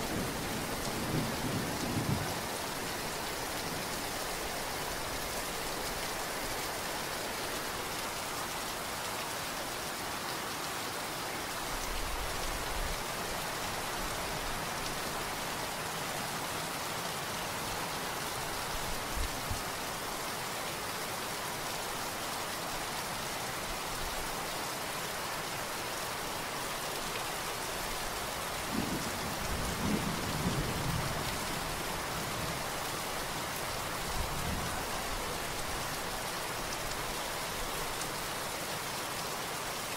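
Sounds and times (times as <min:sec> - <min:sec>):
steady rain hiss: 0:00.0 - 0:39.9
distant thunder rumbles: 0:00.1 - 0:02.5, 0:28.7 - 0:31.6.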